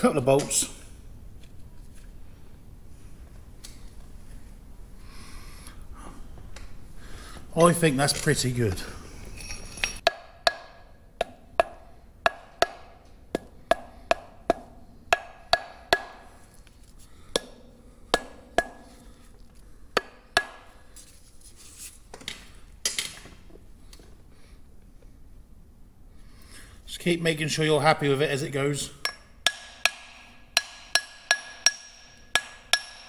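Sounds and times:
hammer tapping metal plate: 10.0s - 16.3s, 17.3s - 20.8s, 29.0s - 33.0s.

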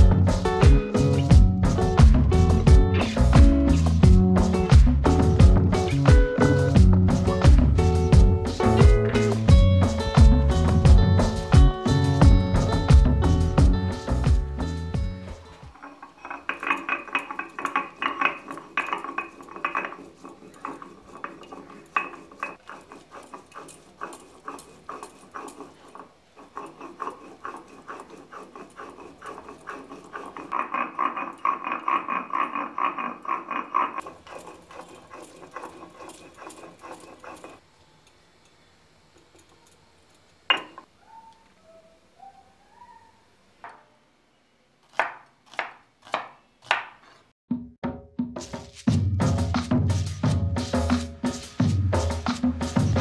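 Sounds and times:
stone grinding on stone slab: 15.7s - 37.6s.

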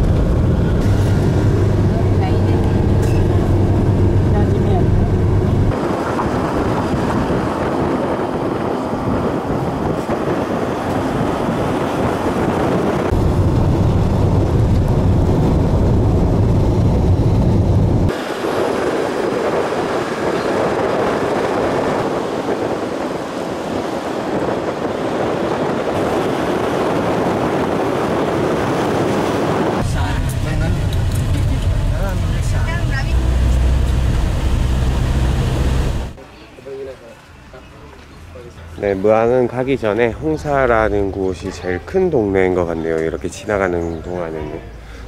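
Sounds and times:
deep rumble: 0.0s - 18.2s, 25.8s - 36.2s
vehicle road noise: 0.0s - 45.0s.

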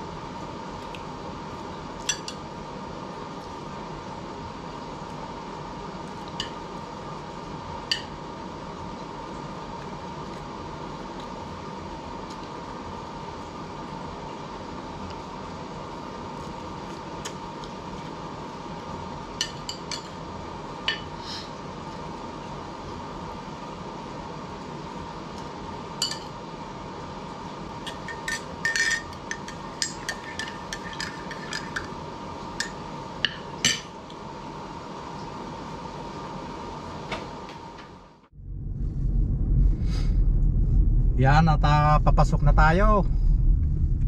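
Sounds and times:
steady background hum: 0.0s - 44.0s
cutlery clinking on plate: 27.9s - 31.9s.

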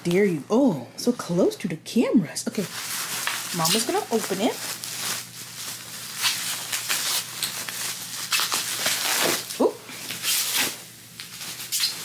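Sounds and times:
plastic packaging crinkling: 2.5s - 12.0s.

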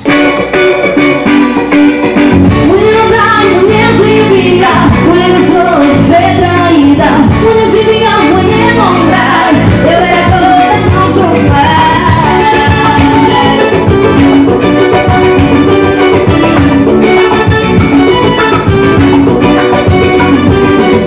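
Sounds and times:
drums: 0.0s - 21.0s
electric guitars: 0.0s - 21.0s
woman singing into microphone: 2.5s - 14.2s.

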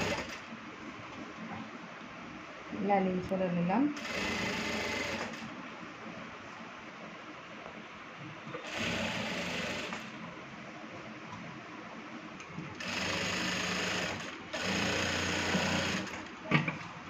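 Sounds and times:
sewing machine stitching: 0.0s - 0.4s, 4.0s - 5.4s, 8.6s - 10.1s, 12.8s - 16.3s.

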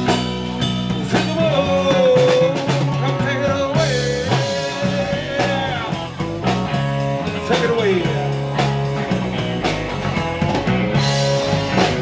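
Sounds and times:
drum kit: 0.0s - 12.0s
electric bass: 0.0s - 12.0s.

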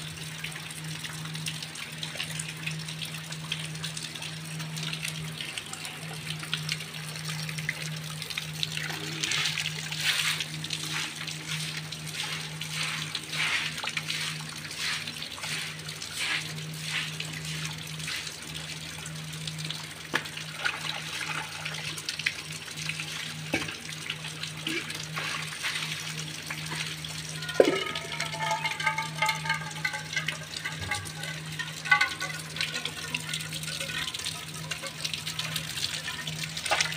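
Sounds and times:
dustpan scraping and splashing water: 9.0s - 18.4s, 24.6s - 26.9s, 27.5s - 34.1s.

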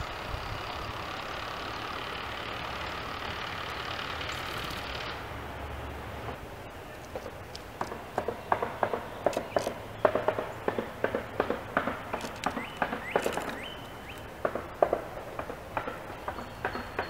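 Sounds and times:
woodpecker tapping on wood: 7.0s - 17.0s.

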